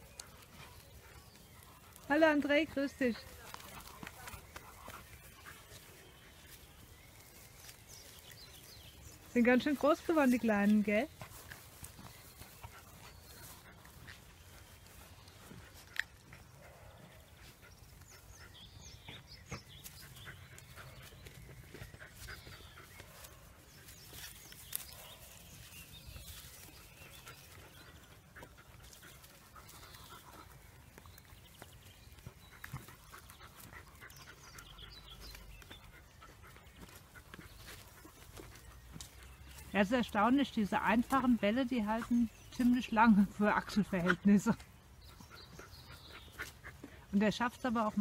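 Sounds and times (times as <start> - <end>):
puppies panting: 0.0 - 48.0.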